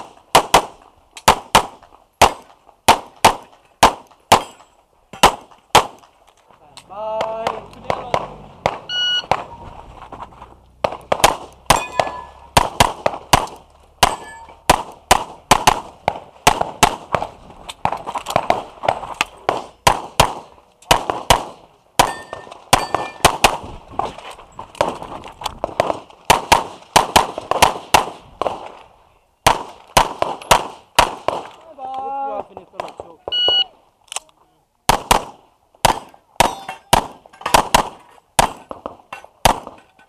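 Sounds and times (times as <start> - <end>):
pistol shots: 0.0 - 6.1, 7.2 - 9.5, 10.8 - 18.7, 19.4 - 23.6, 25.6 - 28.7, 29.4 - 31.6, 34.9 - 39.8
metallic clang of steel targets: 4.4 - 5.3, 11.6 - 12.6, 14.0 - 14.7, 22.0 - 23.3, 36.4 - 37.6.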